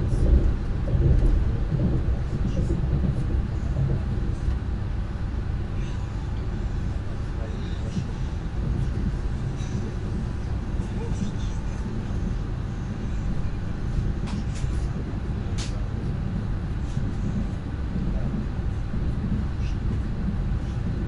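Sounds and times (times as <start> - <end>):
train running gear rumbling: 0.0 - 21.0.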